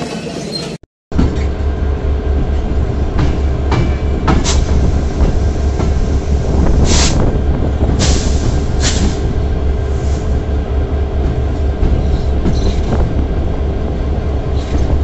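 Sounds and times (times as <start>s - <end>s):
diesel locomotive engine throb: 1.1s - 15.0s
wheels clicking on rail joints: 11.1s - 13.1s.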